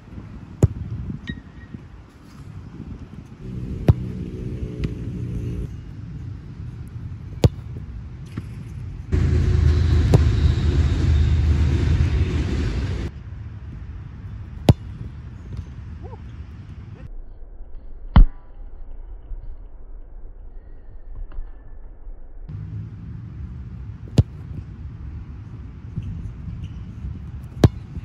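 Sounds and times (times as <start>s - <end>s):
soccer ball kicked hard: 0.5s - 1.3s, 3.4s - 5.0s, 7.3s - 7.9s, 14.6s - 15.7s, 24.1s - 24.7s, 27.5s - 28.0s
steady low rumble: 1.9s - 20.4s, 22.4s - 28.0s.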